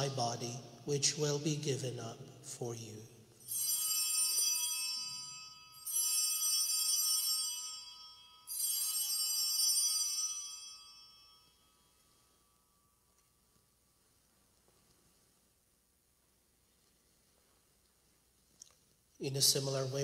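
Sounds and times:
altar bells jingling: 3.4 - 13.8.

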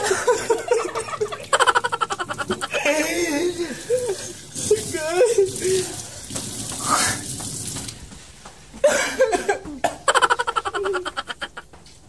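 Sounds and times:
person laughing: 0.0 - 6.0, 8.8 - 11.8
water running from a tap: 0.7 - 8.0.

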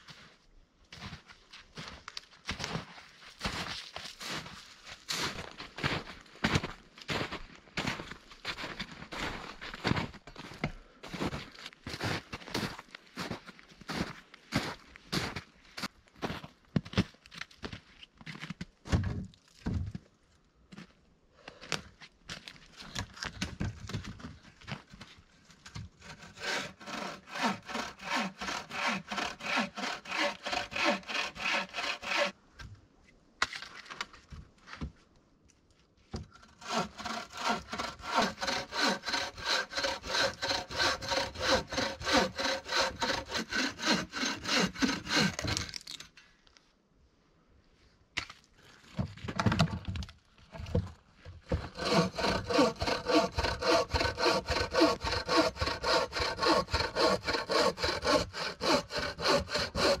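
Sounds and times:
bow saw cutting log: 26.0 - 32.4, 36.4 - 45.8, 51.5 - 60.0.

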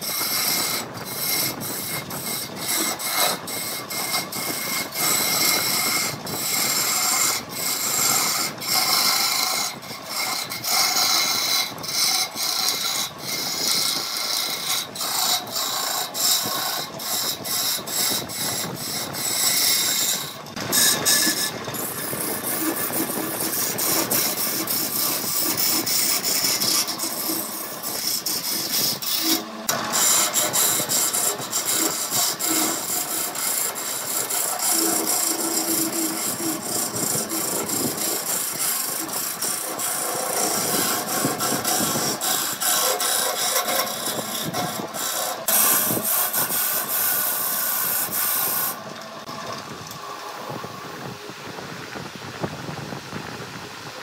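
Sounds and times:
wood lathe chisel cutting: 0.0 - 50.4.

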